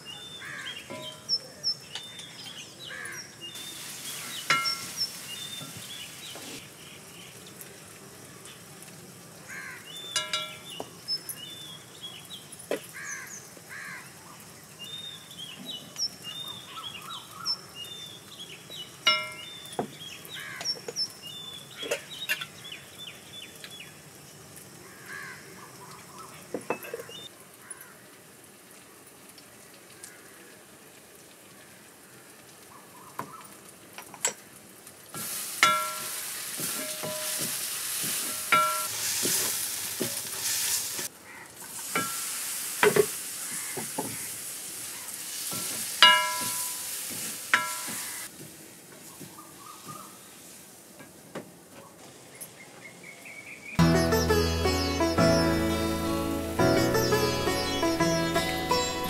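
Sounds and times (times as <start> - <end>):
birds chirping: 0.0 - 8.8, 9.5 - 24.0, 51.8 - 59.0.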